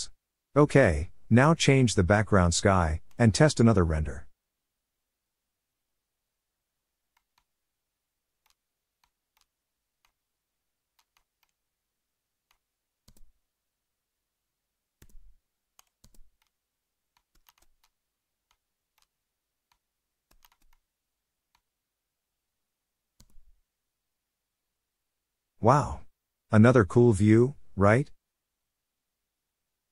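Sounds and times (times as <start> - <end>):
computer mouse and keyboard clicks: 7.1 - 7.6, 8.4 - 10.2, 10.9 - 11.6, 12.4 - 13.4, 15.0 - 20.9, 23.2 - 23.6.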